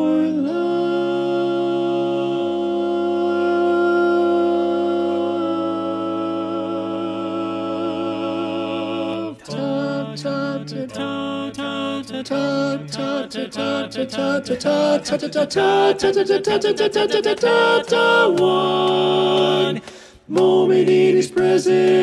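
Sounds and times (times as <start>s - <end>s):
voices singing a cappella: 0.0s - 22.0s.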